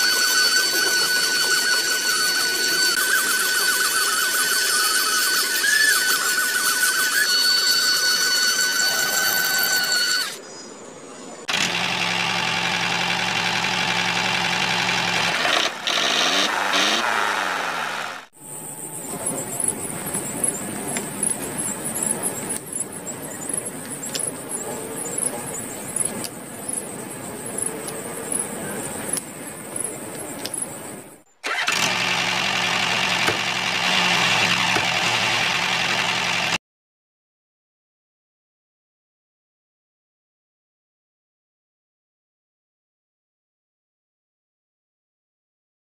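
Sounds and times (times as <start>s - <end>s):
motor running: 0.0s - 10.4s, 11.5s - 36.6s.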